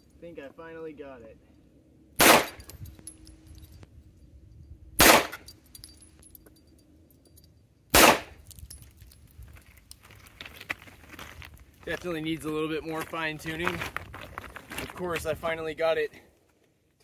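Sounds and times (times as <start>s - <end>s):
pistol shots: 2.2s - 2.7s, 5.0s - 5.4s, 7.9s - 8.4s
faint metal clinks: 2.6s - 4.8s, 5.4s - 10.2s.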